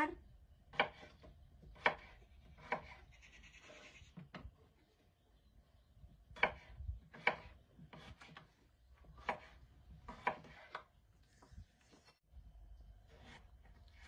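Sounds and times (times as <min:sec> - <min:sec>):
knife slicing potatoes: 0:09.1 - 0:10.9, 0:13.1 - 0:14.0.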